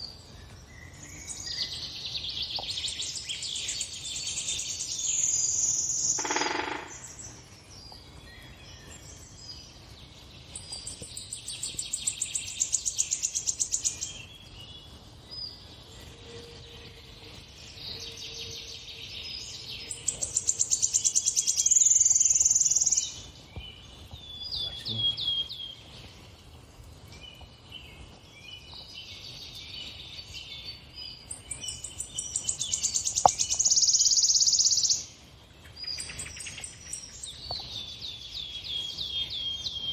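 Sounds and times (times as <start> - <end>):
bird trilling: 6.1 - 7.2.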